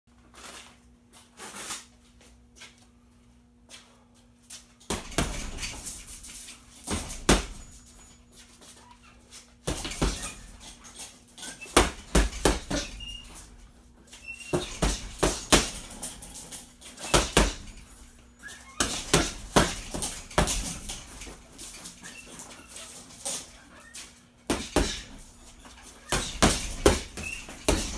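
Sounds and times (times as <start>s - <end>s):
boxing gloves punching heavy bag: 4.9s - 8.2s, 9.6s - 23.5s, 24.4s - 27.9s.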